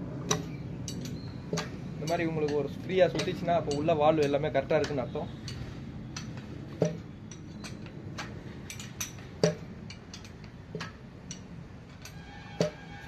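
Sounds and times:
metallic clicks of hand tools: 0.3s - 12.8s
sharp knocks: 9.2s - 9.7s.

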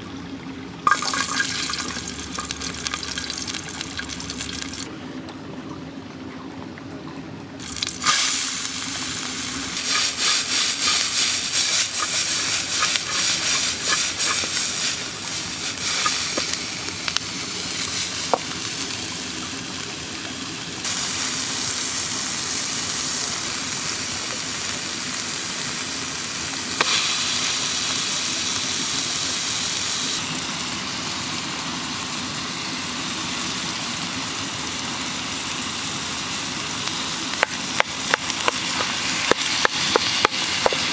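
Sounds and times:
fast rhythmic stirring: 0.9s - 4.9s, 9.8s - 16.3s
onion sizzling in hot oil: 0.9s - 4.9s, 7.6s - 40.9s.

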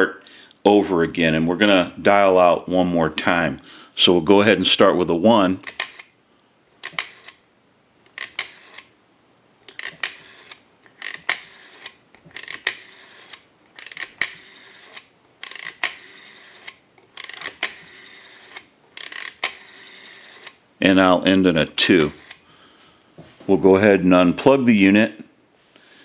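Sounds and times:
rotary phone dial clicking: 5.6s - 6.1s, 6.8s - 7.4s, 8.1s - 8.9s, 9.7s - 20.6s, 21.9s - 22.4s.

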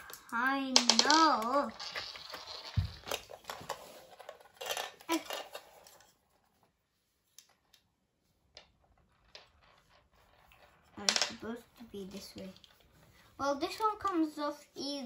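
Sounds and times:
plastic track pieces clicking: 0.0s - 6.1s.

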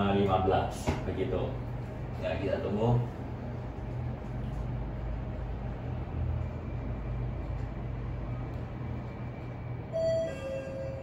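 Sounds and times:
elevator car rumbling: 3.1s - 11.0s
elevator arrival chime: 9.9s - 11.0s.

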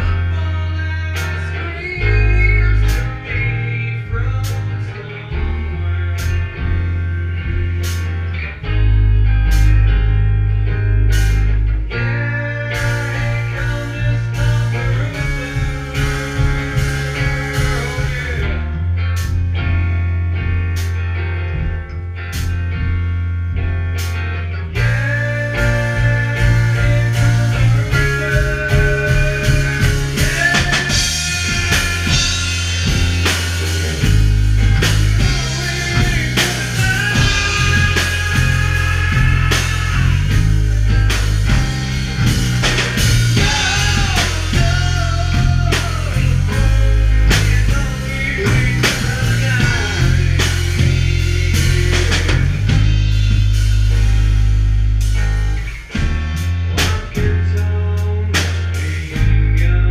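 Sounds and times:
man singing into microphone: 0.0s - 6.4s, 12.0s - 18.8s, 24.8s - 33.0s, 35.1s - 40.8s, 43.3s - 52.7s, 56.8s - 59.9s
bass guitar low notes: 0.0s - 59.9s
electric guitar: 0.0s - 59.9s
drum kit hits: 24.8s - 57.7s.

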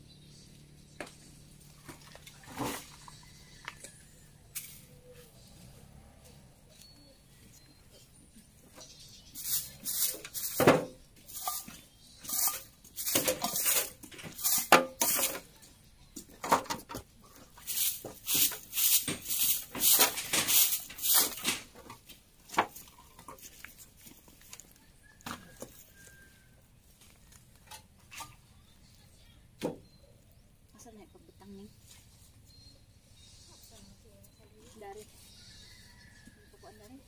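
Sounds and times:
broom sweeping dry leaves: 4.5s - 5.8s, 8.9s - 15.6s, 17.4s - 21.8s.

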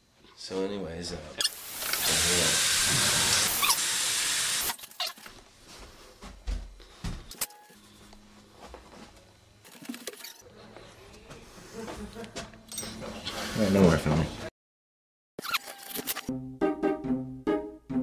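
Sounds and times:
shower water rushing: 1.5s - 4.8s.

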